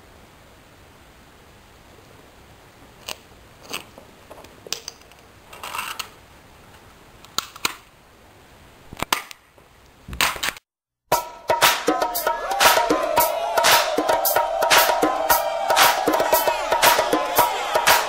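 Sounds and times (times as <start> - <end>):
low steady hiss: 0.0 - 10.6.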